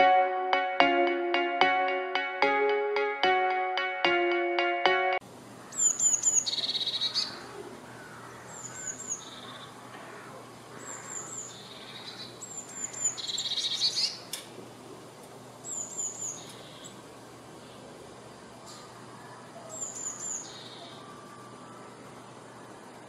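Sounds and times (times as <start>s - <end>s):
bird singing high notes and trill: 0.0s - 5.2s.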